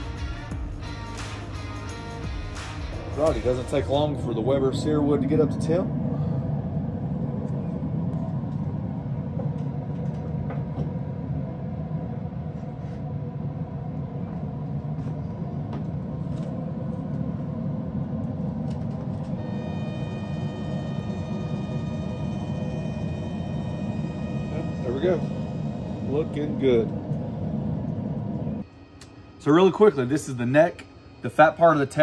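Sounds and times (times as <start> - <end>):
grill rumbling: 0.0 - 28.6
rotisserie motor whine: 13.2 - 31.5.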